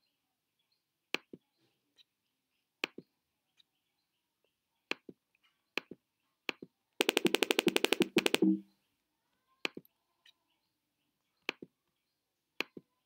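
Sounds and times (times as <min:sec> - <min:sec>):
computer mouse button clicks: 0:07.0 - 0:08.6.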